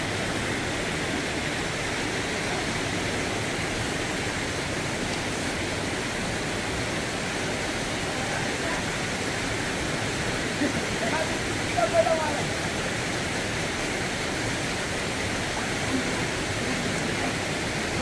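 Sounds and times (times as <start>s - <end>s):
fast-flowing stream: 0.0s - 18.0s.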